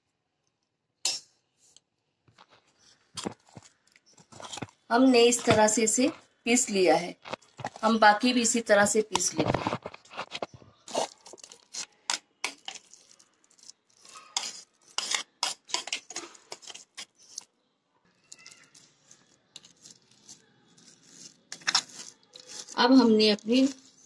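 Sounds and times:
spoon scraping a jar: 2.7s - 4.7s, 9.2s - 17.5s, 18.2s - 24.0s.

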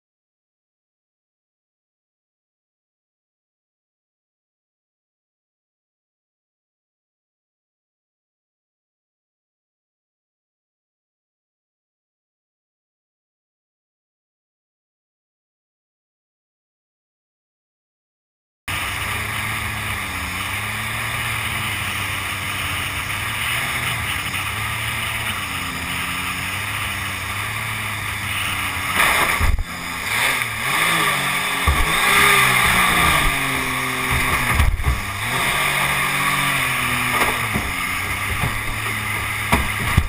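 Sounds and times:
jet boat engine running: 18.7s - 40.0s
sharp knocks: 31.6s - 33.3s, 34.0s - 35.1s, 37.0s - 40.0s.

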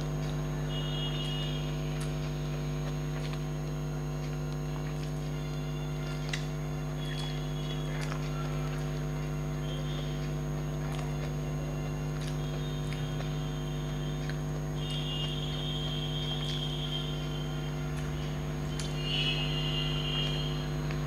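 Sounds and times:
eating by hand clicks: 0.0s - 21.0s
electrical mains hum: 0.0s - 21.0s.

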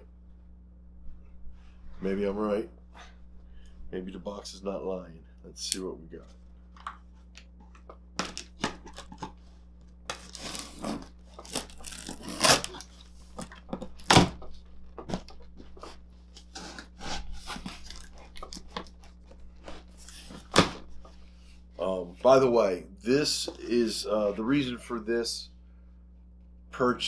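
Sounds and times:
cardboard tearing and crinkling: 10.1s - 14.4s, 15.1s - 20.9s.

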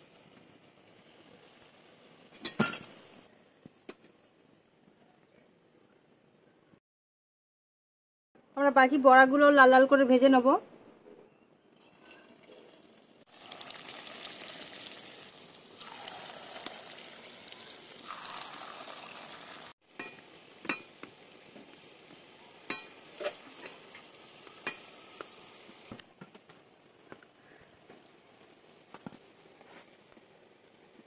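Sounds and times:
fritters sizzling in hot oil: 0.0s - 4.7s, 11.8s - 31.0s.

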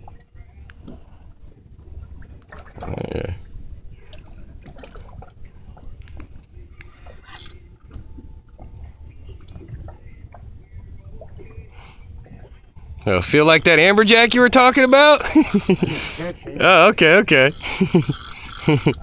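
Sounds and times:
wind and water rumble: 0.0s - 19.0s
fishing reel clicking: 17.5s - 19.0s.

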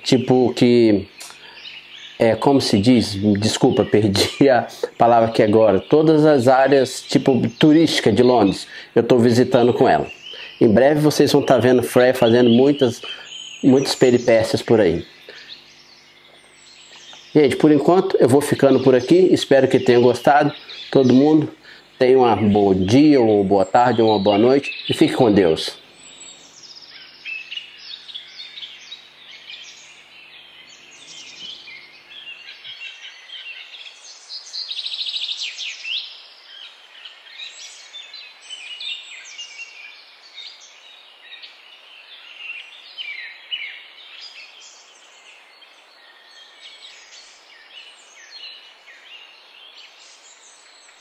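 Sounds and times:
low steady hum: 0.0s - 34.4s
birds calling and chirping: 0.0s - 51.0s.

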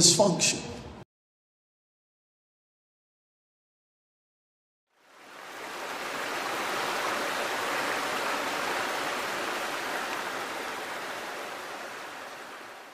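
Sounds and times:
running water rushing: 4.9s - 12.9s.

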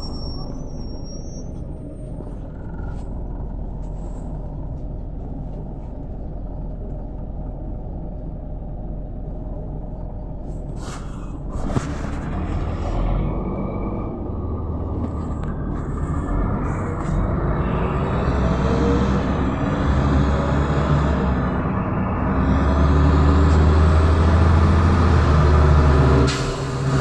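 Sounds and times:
bus engine rumble: 0.0s - 27.0s.

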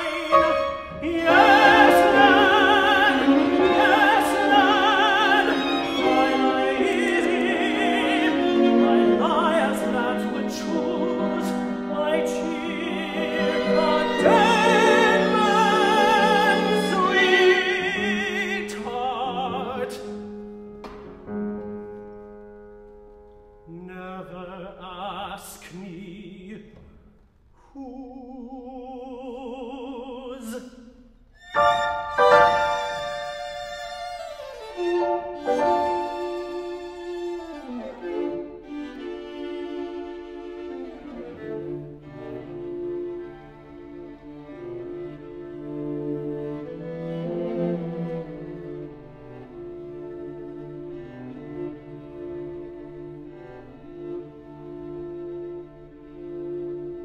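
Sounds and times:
tenor singing with vibrato: 0.0s - 20.1s, 27.6s - 37.6s
string quartet: 0.0s - 22.4s, 29.3s - 57.0s.

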